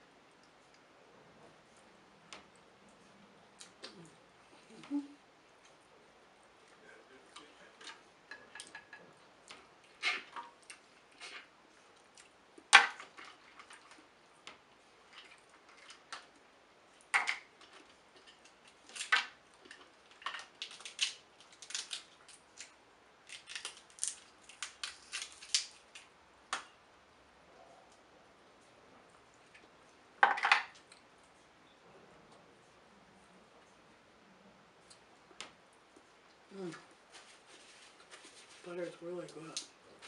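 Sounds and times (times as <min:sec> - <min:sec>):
crab shells cracking: 0:17.1 - 0:26.7.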